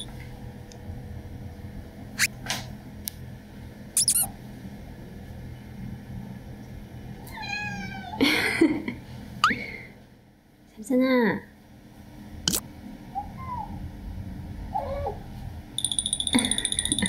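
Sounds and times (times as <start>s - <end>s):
kitten meowing: 4.0s - 4.3s, 7.3s - 8.2s.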